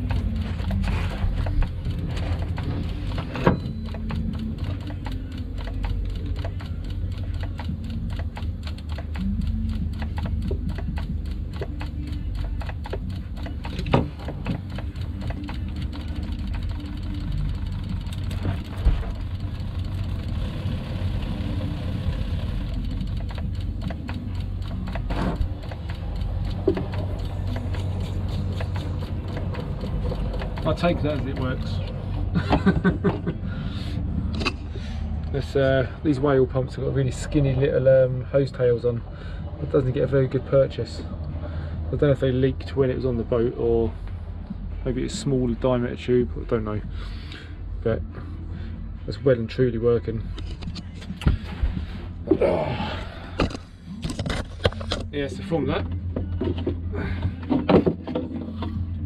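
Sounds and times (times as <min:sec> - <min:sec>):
water pump humming and chattering: 0:13.0 - 0:32.0.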